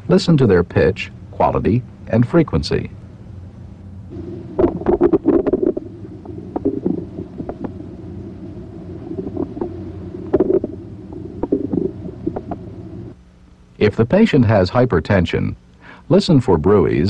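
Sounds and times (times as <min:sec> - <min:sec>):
low steady hum: 0:00.0 - 0:17.0
bowel gurgles and clicks: 0:04.6 - 0:07.8, 0:09.1 - 0:12.7.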